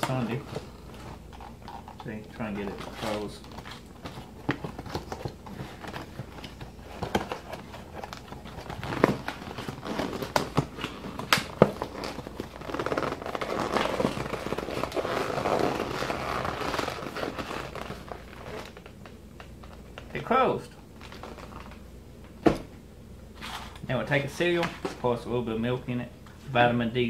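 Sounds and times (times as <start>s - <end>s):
plastic bag crinkling: 0.0s - 20.2s, 21.0s - 21.8s.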